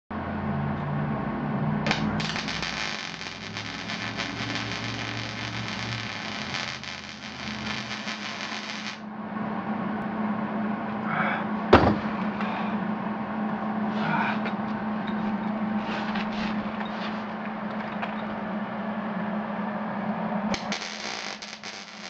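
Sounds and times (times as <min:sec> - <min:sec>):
steady low hum: 0:00.2 - 0:22.0
arc welding crackling hiss: 0:01.9 - 0:09.0, 0:20.6 - 0:22.0.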